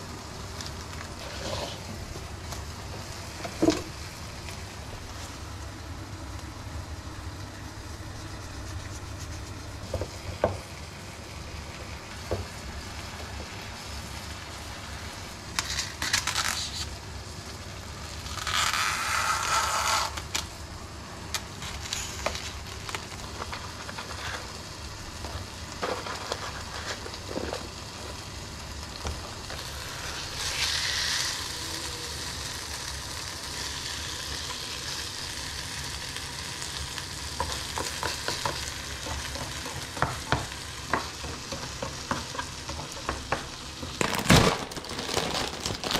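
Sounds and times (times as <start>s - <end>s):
food sizzling in a pan: 0.0s - 44.1s
rustling: 43.9s - 45.9s.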